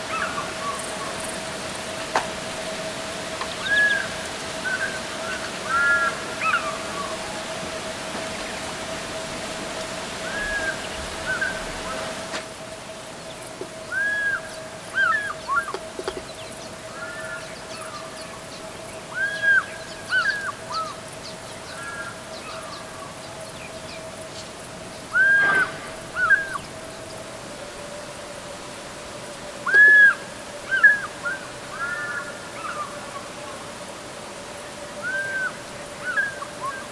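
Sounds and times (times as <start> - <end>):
fish eagle calling: 13.9 - 16.2, 25.1 - 27.2, 29.6 - 32.9.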